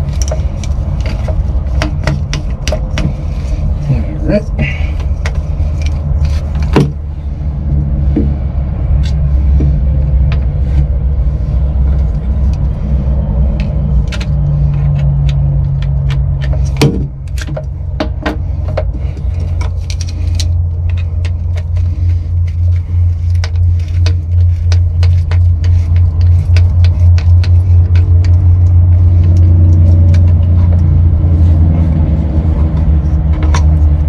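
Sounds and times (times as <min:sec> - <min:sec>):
screwdriver and wires clattering: 0:00.0 - 0:03.3, 0:13.6 - 0:30.9
low rumbling hum: 0:00.0 - 0:34.0.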